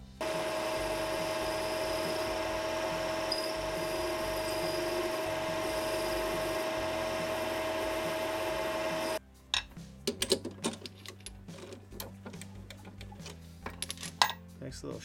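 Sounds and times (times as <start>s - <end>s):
metal lathe whining: 0.2s - 9.2s.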